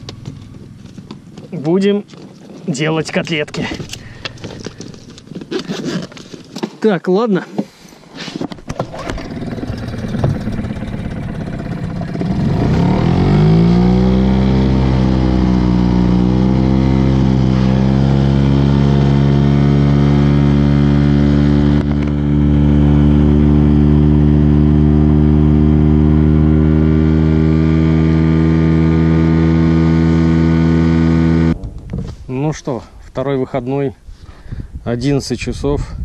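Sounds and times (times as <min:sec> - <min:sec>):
outboard motor running: 0:08.7 - 0:31.6.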